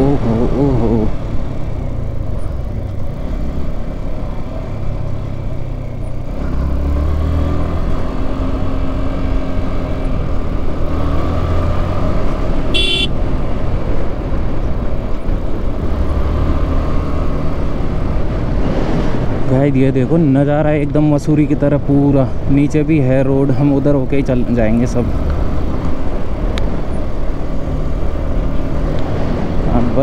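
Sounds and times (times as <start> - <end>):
motorcycle engine running: 12.1 - 15.8
horn beep: 12.7 - 13.2.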